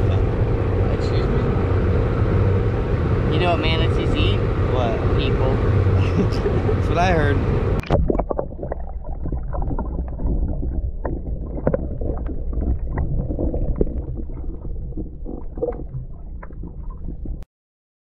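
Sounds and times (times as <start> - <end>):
muffled underwater rumble: 0.0 - 17.4
underwater clicks and crackles: 7.8 - 17.4.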